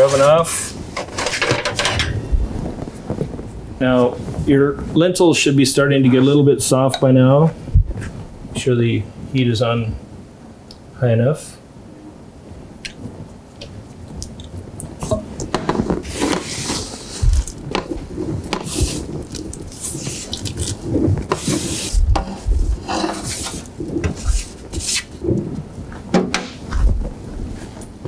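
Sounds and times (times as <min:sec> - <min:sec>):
metal scraping and clattering: 0:00.0 - 0:03.3, 0:21.2 - 0:25.1
vegetables sliding into metal pot: 0:15.6 - 0:17.9, 0:19.7 - 0:25.2.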